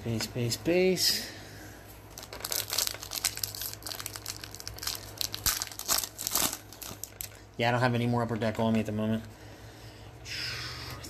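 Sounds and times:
trading cards and foil wrappers crinkling: 2.1 - 9.0.

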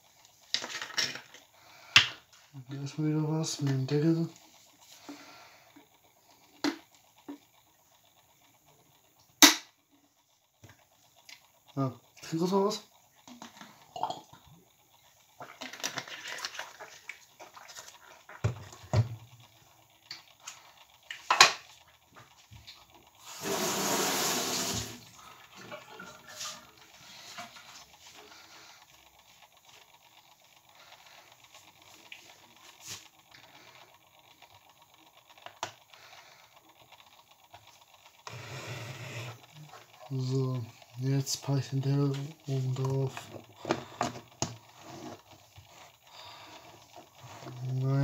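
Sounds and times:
kitchen tap running: 8.6 - 28.7.

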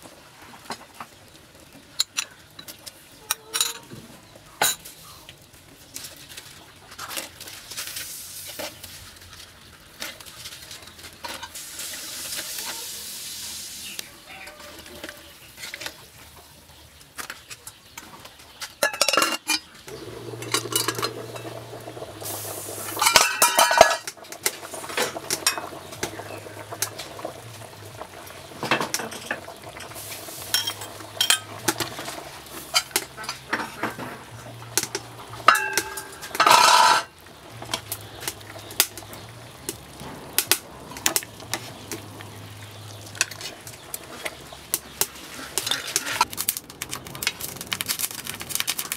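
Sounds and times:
metal ladle clinking on pot: 23.0 - 24.2, 34.8 - 37.1.

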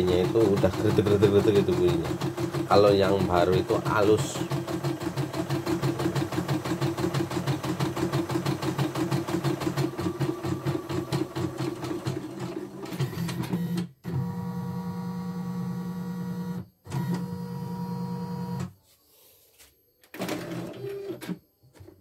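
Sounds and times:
embroidery machine stitching: 0.0 - 13.6, 20.1 - 21.4.

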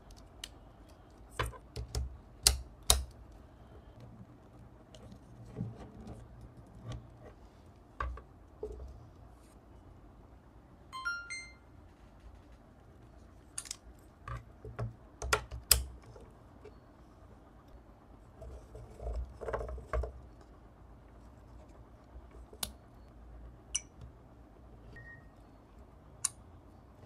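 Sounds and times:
rising electronic chime: 11.0 - 11.7.

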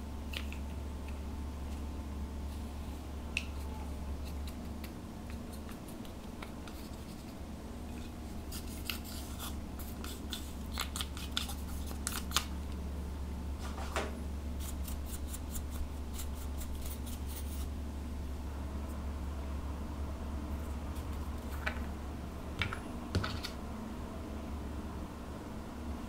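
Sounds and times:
steady low hum: 0.0 - 26.0
spatula scraping eyeshadow powder: 8.5 - 12.2, 14.6 - 17.7.

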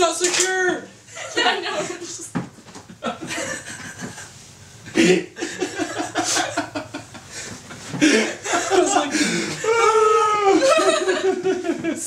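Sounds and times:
woman laughing: 1.2 - 2.2, 5.0 - 7.3, 8.0 - 12.0.

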